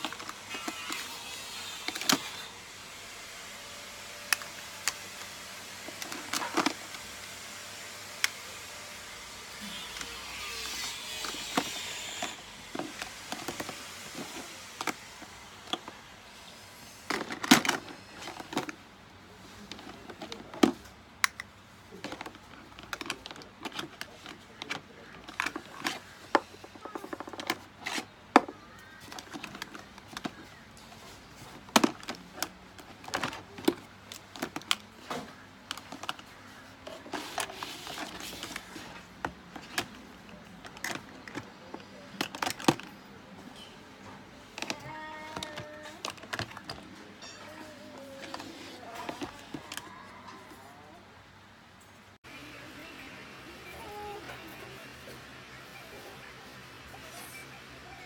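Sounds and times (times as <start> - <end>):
plastic cases clicking and knocking: 0.0 - 1.1, 1.8 - 2.5, 4.2 - 7.2, 10.8 - 16.0, 17.1 - 18.8, 19.6 - 43.0, 44.5 - 47.0.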